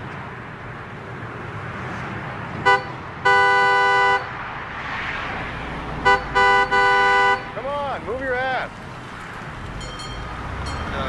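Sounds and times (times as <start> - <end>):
low traffic noise: 0.0 - 11.0
car horn honking: 2.6 - 4.4, 6.0 - 7.8.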